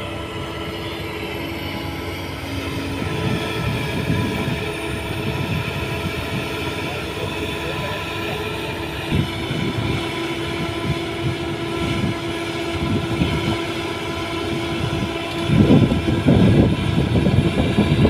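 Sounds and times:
excavator diesel engine under load: 0:00.0 - 0:18.0.

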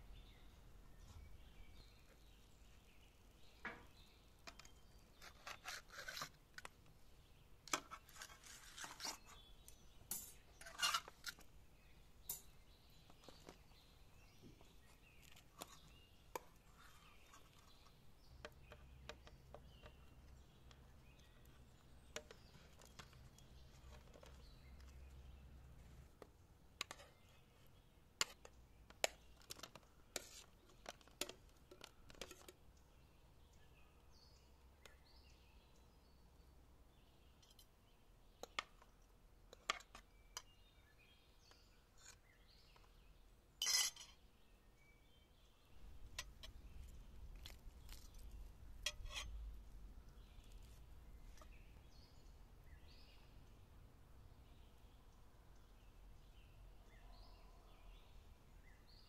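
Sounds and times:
knife and skewers scraping plate: 0:05.2 - 0:06.4, 0:07.9 - 0:09.5, 0:10.6 - 0:11.4, 0:43.6 - 0:44.2, 0:48.8 - 0:49.4.

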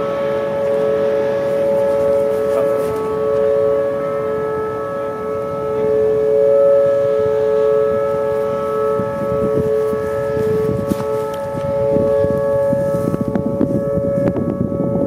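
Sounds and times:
dual-tone warning siren: 0:00.0 - 0:15.0.

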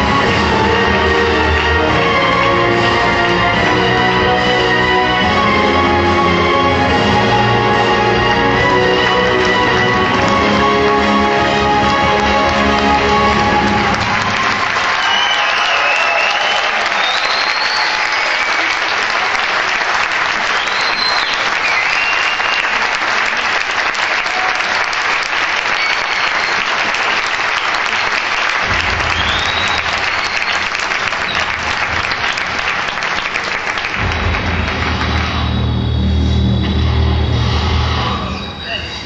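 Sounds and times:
low music: 0:00.0 - 0:14.3
audience applauding: 0:00.0 - 0:36.1
whistles: 0:14.3 - 0:18.9, 0:20.4 - 0:22.9, 0:25.6 - 0:27.1, 0:28.8 - 0:32.4, 0:35.1 - 0:39.0.

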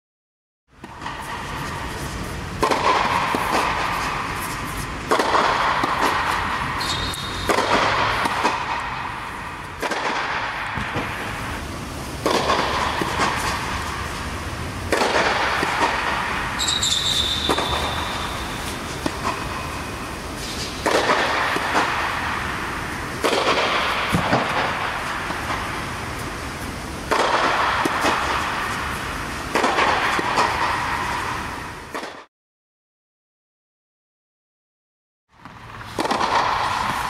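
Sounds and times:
steady low hum: 0:00.8 - 0:31.9
racquet hitting tennis ball: 0:00.8 - 0:32.3, 0:35.4 - 0:37.0
high squeak: 0:16.6 - 0:18.4.

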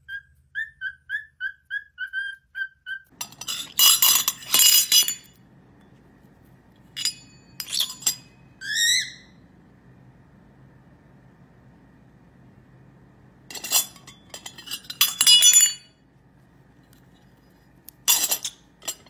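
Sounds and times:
cockatiel whistling: 0:00.0 - 0:03.1, 0:08.6 - 0:09.4
steel lid clattering on bowl: 0:03.2 - 0:05.3, 0:07.0 - 0:08.3, 0:13.5 - 0:15.9.

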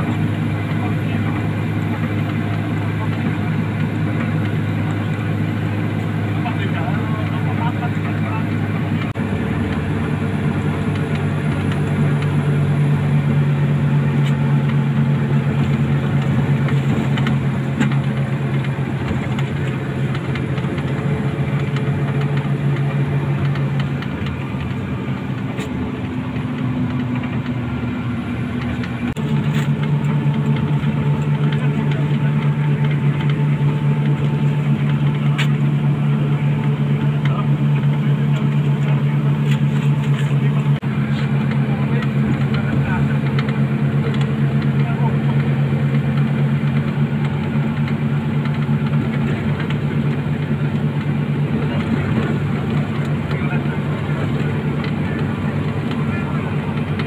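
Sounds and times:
bus diesel engine drone: 0:00.0 - 0:57.0
road noise: 0:00.0 - 0:57.0.

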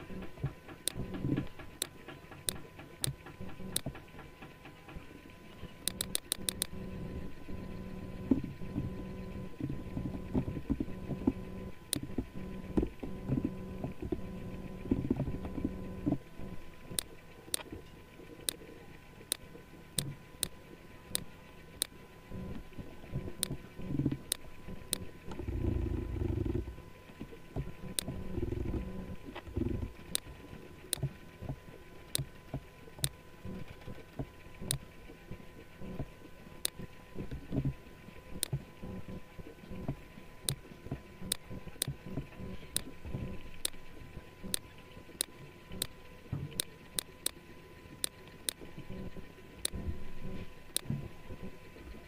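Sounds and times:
faint steady hum: 0:00.0 - 0:52.0
computer mouse clicks: 0:00.1 - 0:04.2, 0:05.8 - 0:06.8, 0:16.9 - 0:17.7, 0:24.3 - 0:26.6, 0:27.9 - 0:28.8, 0:34.6 - 0:34.8, 0:45.2 - 0:46.0.

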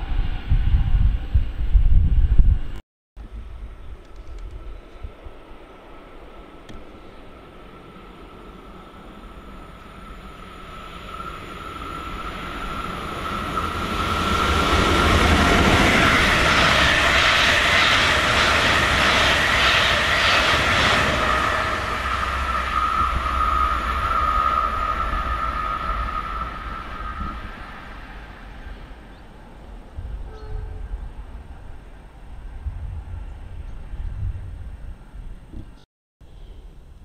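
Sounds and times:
thin steady high whine: 0:03.2 - 0:29.5
train wheels on rails: 0:04.0 - 0:30.5.

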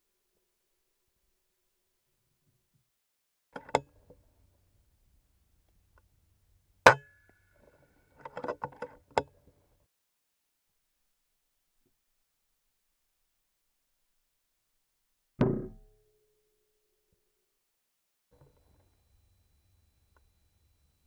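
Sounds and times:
faint ringing tone: 0:18.4 - 0:21.0.

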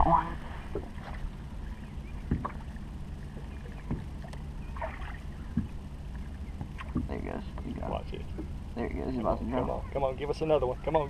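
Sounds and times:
steady low hum: 0:00.0 - 0:11.0
dull knocks on boat: 0:02.2 - 0:02.6, 0:03.8 - 0:04.1, 0:05.5 - 0:05.8, 0:06.6 - 0:07.2.

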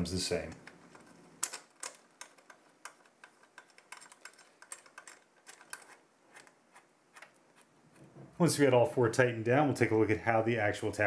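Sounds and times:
metal caps clicking while screwed: 0:00.5 - 0:06.6.

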